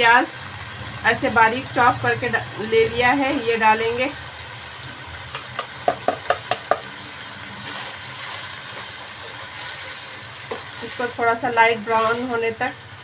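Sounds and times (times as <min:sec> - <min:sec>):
chicken and onion sizzling in oil: 0:00.0 - 0:13.0
spoon knocking against pot: 0:05.3 - 0:06.9.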